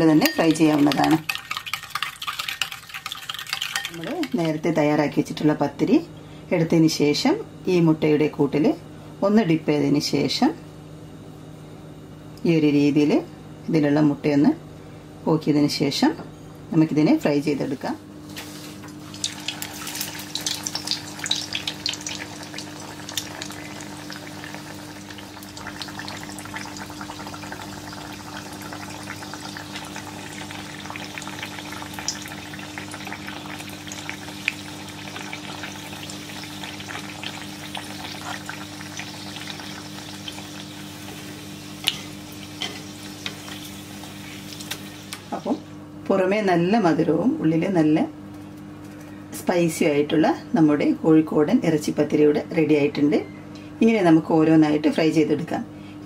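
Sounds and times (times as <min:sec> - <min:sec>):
pastry sizzling in hot oil: 0:00.0 - 0:04.8, 0:18.3 - 0:45.7.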